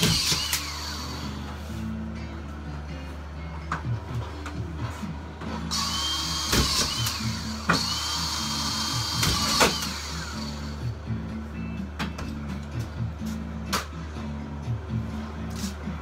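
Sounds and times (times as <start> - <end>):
screw gun motor whining: 0.0 - 1.3, 5.7 - 10.8.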